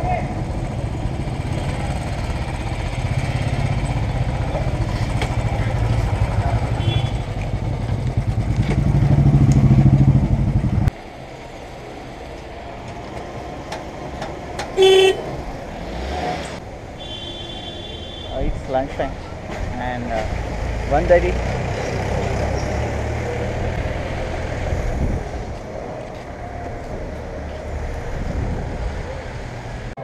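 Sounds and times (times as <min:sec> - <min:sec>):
motorcycle engines idling: 0:00.1 - 0:10.8
motorcycle horn toot: 0:06.8 - 0:07.3, 0:14.8 - 0:15.2.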